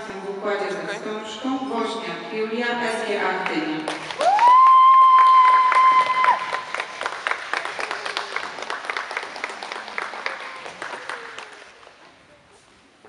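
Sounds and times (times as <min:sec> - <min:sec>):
audience clapping: 0:03.8 - 0:12.0.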